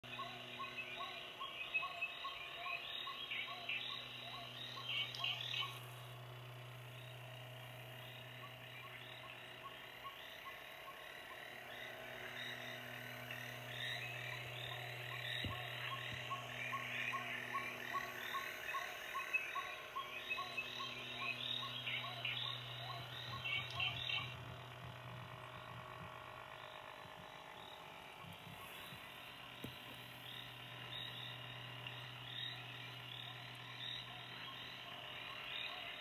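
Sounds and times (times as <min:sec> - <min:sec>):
steady low hum: 0:00.0 - 0:36.0
frog-like croaking calls: 0:08.0 - 0:24.5.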